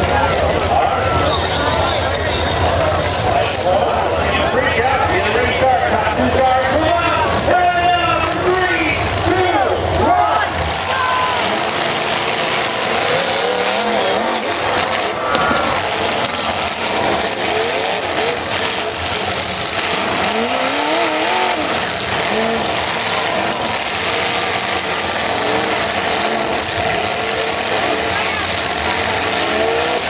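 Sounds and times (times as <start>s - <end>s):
car engines revving hard: 0.0s - 30.0s
cars ramming: 0.0s - 30.0s.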